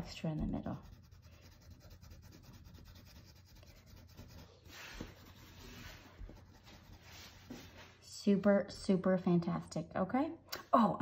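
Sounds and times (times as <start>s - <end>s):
pencil shading on paper: 0.4s - 7.7s.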